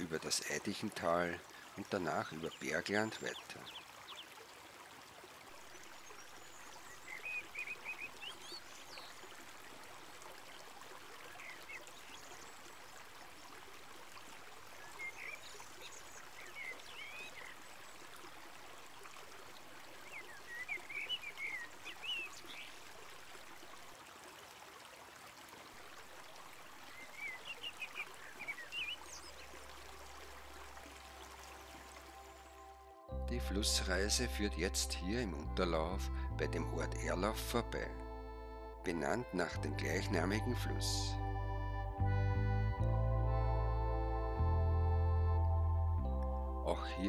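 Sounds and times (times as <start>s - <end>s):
river water rushing: 0.0s - 32.7s
bird chirping: 6.2s - 9.3s, 14.8s - 17.6s, 20.0s - 22.8s, 26.9s - 29.5s.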